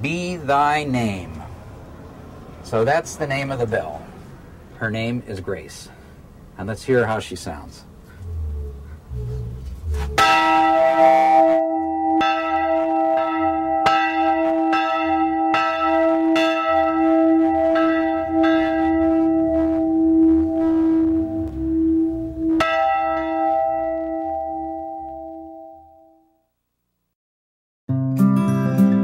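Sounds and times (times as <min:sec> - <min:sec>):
church bell strokes: 0:09.2 - 0:26.1.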